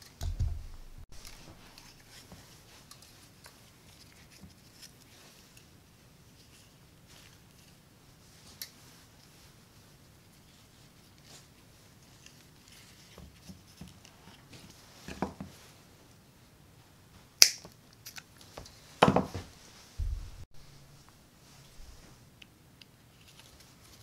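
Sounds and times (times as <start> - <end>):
rustling scrape: 18.7 - 22.2
tools thumping on wooden board: 19.0 - 20.4.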